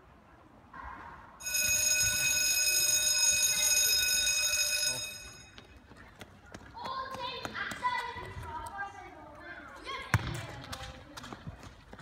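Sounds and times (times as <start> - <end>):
electric bell ringing: 1.4 - 5.6.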